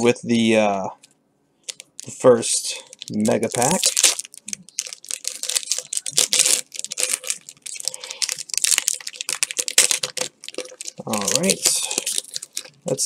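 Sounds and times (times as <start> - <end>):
foil wrapper tearing and crinkling: 2.7 - 13.0.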